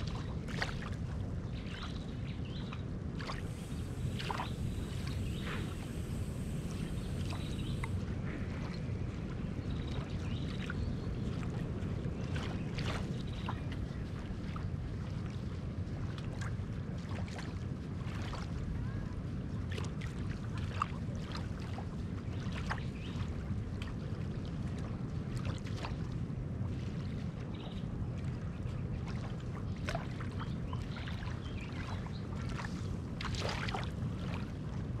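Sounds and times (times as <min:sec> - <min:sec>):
ripples lapping on sandy shore: 0:02.7 - 0:18.7, 0:26.7 - 0:35.0
steady low rumble: 0:03.0 - 0:10.2.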